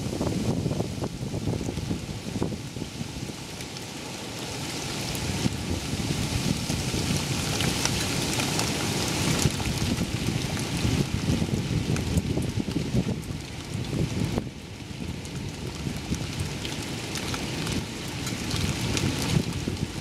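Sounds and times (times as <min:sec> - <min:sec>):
wind buffeting microphone: 0:00.0 - 0:03.4, 0:04.9 - 0:20.0
rain falling on deck: 0:00.0 - 0:20.0.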